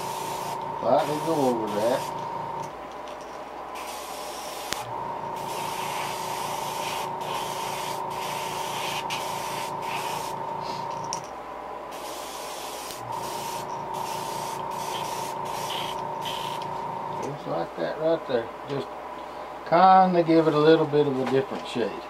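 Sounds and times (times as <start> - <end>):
airbrush spraying hiss: 0.0 - 2.3, 3.8 - 10.9, 11.9 - 16.8
steady hum: 0.0 - 21.2.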